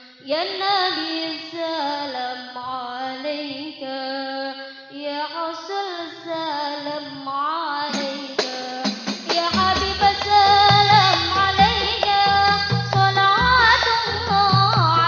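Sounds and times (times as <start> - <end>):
woman singing unaccompanied: 0.0 - 15.0
hand-struck frame drums: 8.4 - 15.0
deep drum: 8.9 - 15.0.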